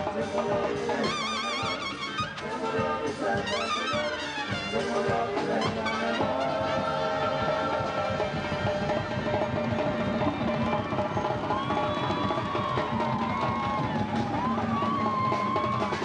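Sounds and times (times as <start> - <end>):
trumpets playing with vibrato: 0.0 - 12.6
drums and hand percussion: 0.0 - 16.0.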